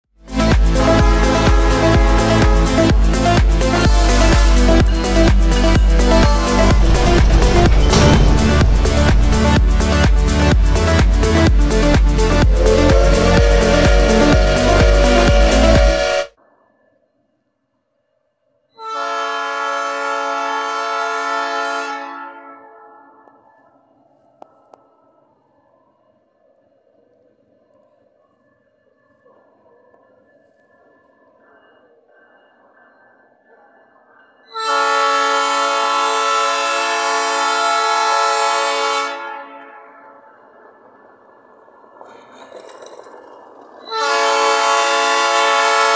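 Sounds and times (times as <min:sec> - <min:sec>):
electronic dance music: 0:00.3 - 0:16.3
locomotive horn: 0:00.3 - 0:16.3, 0:18.8 - 0:23.4, 0:34.5 - 0:40.3, 0:43.8 - 0:45.9.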